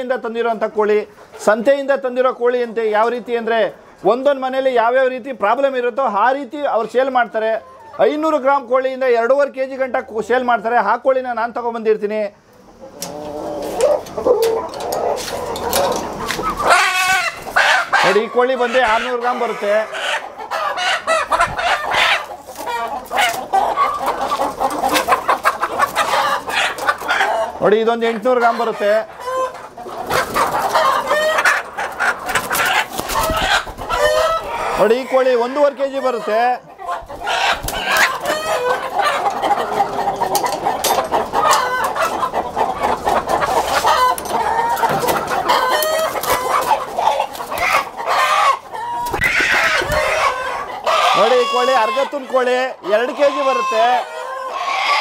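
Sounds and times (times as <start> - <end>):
chickens clucking and squawking: 0.0 - 55.0
roosters crowing: 13.0 - 55.0.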